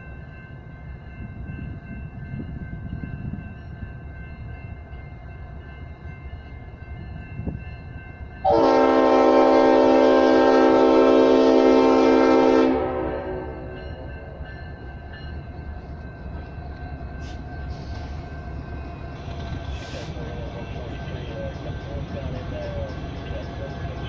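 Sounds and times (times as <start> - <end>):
diesel locomotive rumble: 0.0 - 24.0
locomotive air horn blast: 8.4 - 13.7.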